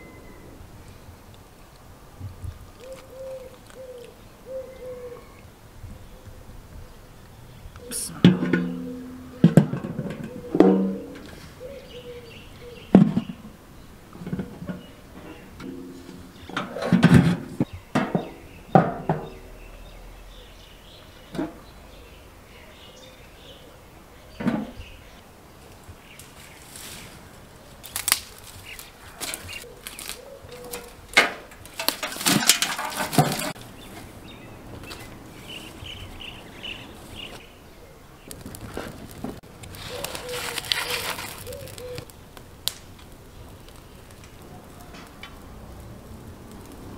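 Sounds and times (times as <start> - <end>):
dry twigs cracking and snapping: 2.8 - 4.2, 27.6 - 33.7, 38.2 - 46.9
metal bucket clanking on stone: 8.2 - 11.4, 15.6 - 19.4, 30.7 - 33.6.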